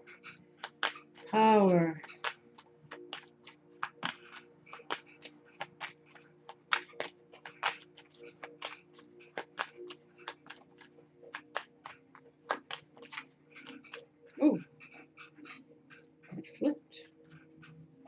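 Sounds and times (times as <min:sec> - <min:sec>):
steady low hum: 0:00.0 - 0:18.0
cards being shuffled: 0:02.1 - 0:14.0.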